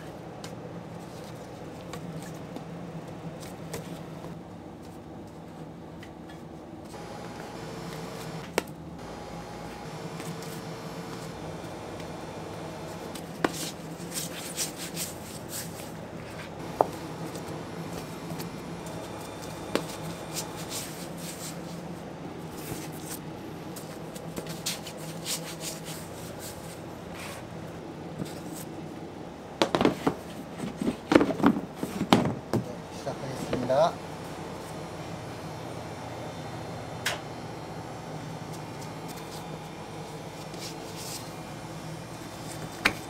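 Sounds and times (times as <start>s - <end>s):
steady low hum: 0.0s - 31.8s, 32.4s - 43.0s
gloved hands rubbing dough: 10.1s - 27.5s, 40.2s - 41.4s.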